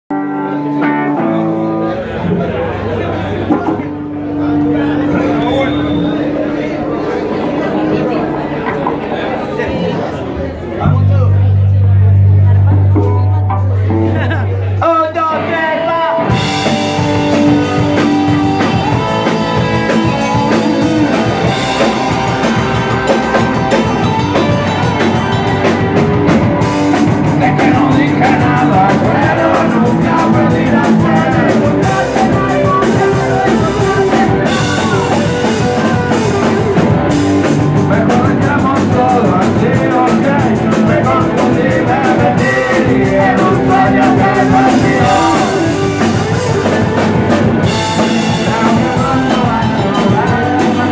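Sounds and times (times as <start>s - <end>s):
bass guitar: 0.1s - 50.9s
distorted electric guitar: 0.1s - 50.9s
drum kit: 12.2s - 14.5s, 16.2s - 50.9s
man singing: 14.8s - 25.3s, 26.8s - 50.9s.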